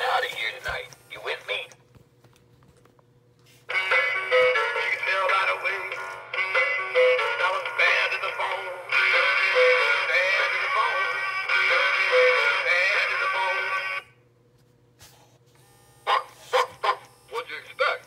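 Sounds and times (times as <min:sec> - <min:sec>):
toy singing over music: 0:03.7 - 0:14.0.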